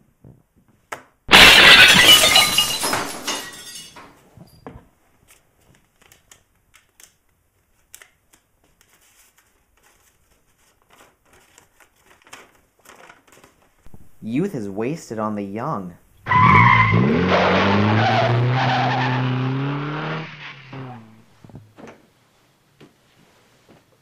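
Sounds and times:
window glass shattering: 1.3 - 4.1
glass pieces tinkling: 1.3 - 4.6
faint crinkling and clicks: 5.2 - 13.9.

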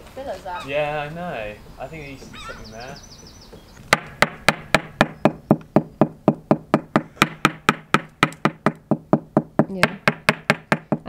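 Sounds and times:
knocking on fibreglass boat hull: 3.9 - 11.0.

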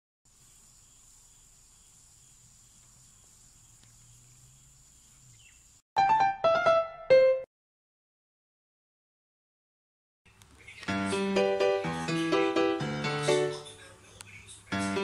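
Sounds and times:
high-pitched insect drone: 0.3 - 5.8.

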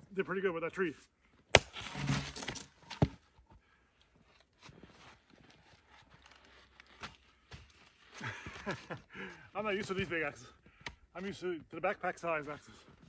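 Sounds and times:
axe striking log: 1.5 - 3.2
faint scuffs and crunches: 4.2 - 9.0.

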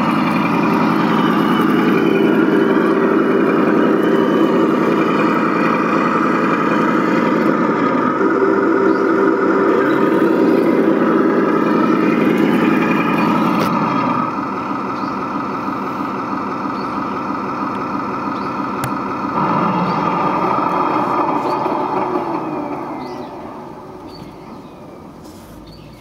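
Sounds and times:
toy tank motor humming: 0.0 - 14.5, 18.4 - 24.2.

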